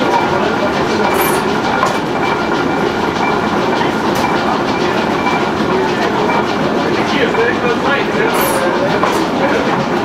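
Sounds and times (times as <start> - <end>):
stationary engine clattering: 0.0 - 10.0.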